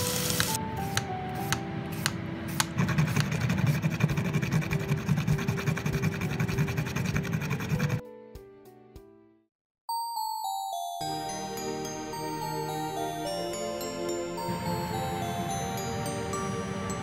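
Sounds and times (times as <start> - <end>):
peeler scraping potato skin: 2.0 - 8.0
nutmeg rasping on metal grater: 2.8 - 8.0.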